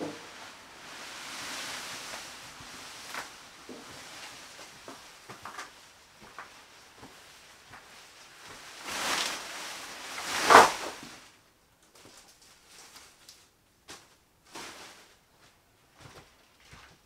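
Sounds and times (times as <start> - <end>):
stalks crashing onto plastic tarp: 0.0 - 5.8, 7.8 - 11.4
corn stalks rustling: 0.1 - 11.4.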